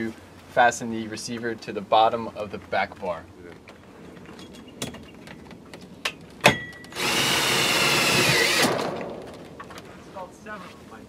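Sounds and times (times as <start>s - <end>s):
screw gun running: 6.9s - 8.9s.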